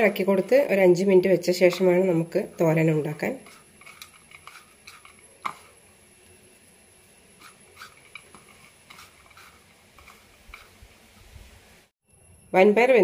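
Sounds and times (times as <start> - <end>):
fingers rustling food on plate: 3.4 - 5.8, 7.3 - 10.9.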